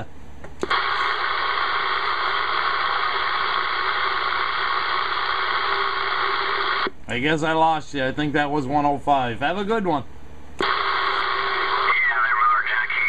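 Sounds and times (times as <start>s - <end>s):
radio static hiss: 0.6s - 6.9s, 10.6s - 13.0s.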